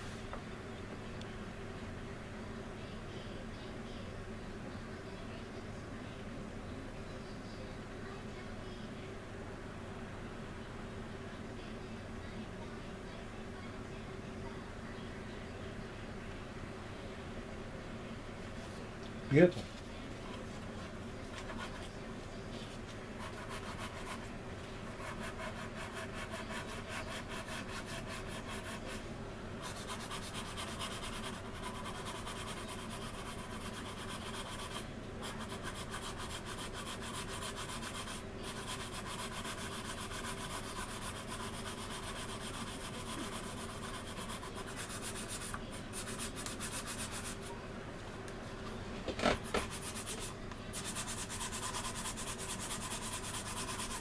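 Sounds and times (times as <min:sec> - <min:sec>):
sanding stick rubbing: 0:29.6 - 0:47.5, 0:49.7 - 0:54.0.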